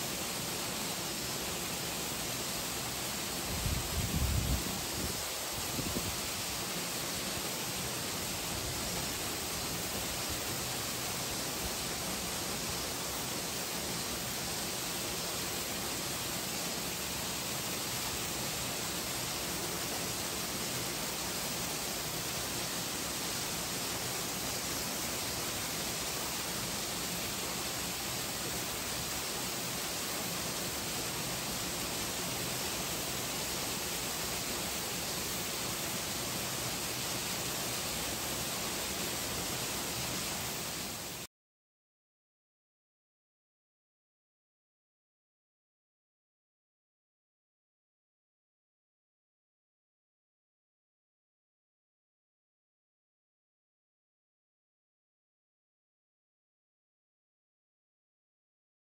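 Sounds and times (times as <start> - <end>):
hiss-like rushing noise: 0.0 - 41.3.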